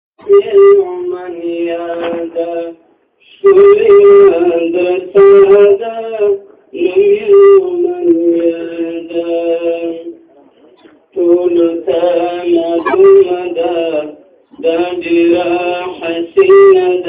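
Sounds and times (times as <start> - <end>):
young person singing unaccompanied: 11.2 - 17.0.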